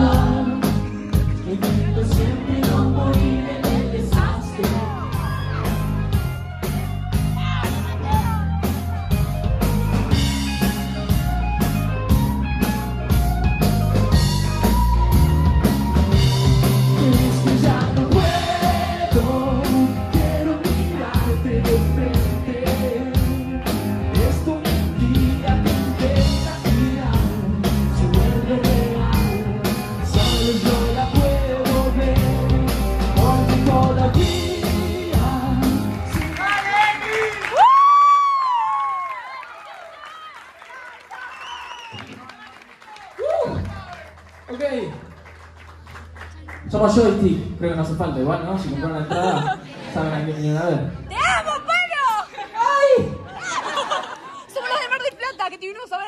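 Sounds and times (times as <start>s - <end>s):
man singing: 0.0s - 5.8s, 16.4s - 36.7s
steady drum beat: 0.0s - 36.5s.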